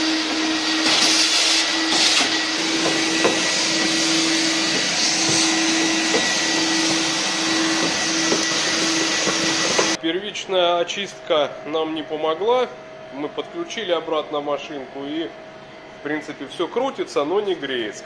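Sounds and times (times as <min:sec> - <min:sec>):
vacuum cleaner humming: 0:00.0 - 0:10.0.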